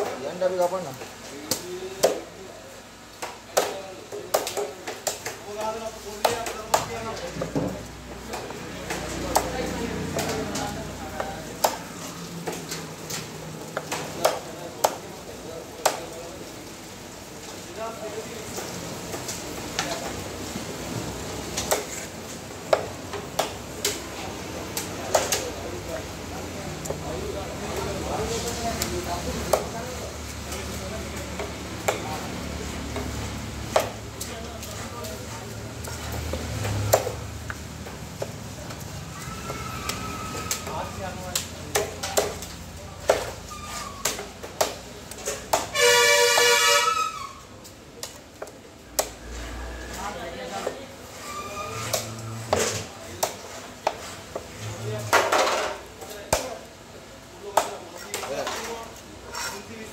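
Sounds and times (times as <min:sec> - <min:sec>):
vehicle horn blast: 0:45.7 - 0:47.2.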